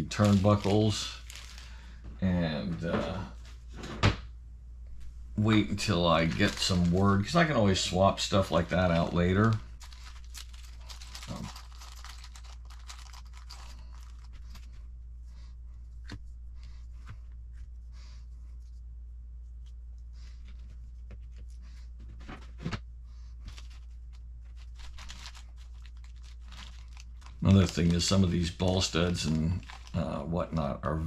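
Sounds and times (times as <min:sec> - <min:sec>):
plastic bag crinkling: 0:00.0 - 0:02.0, 0:05.4 - 0:14.7, 0:23.5 - 0:30.3
low steady hum: 0:00.0 - 0:31.0.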